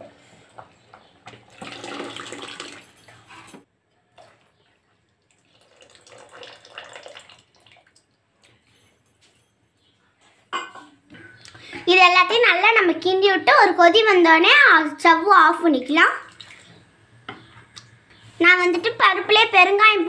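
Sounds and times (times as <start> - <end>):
liquid pouring and splashing into pot: 1.4 - 3.1, 5.2 - 8.1.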